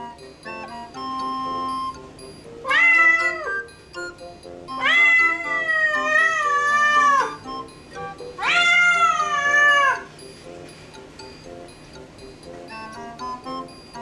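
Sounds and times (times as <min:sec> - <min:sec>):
cat meowing plaintively: 0:02.6 - 0:03.6, 0:04.8 - 0:07.4, 0:08.4 - 0:10.1.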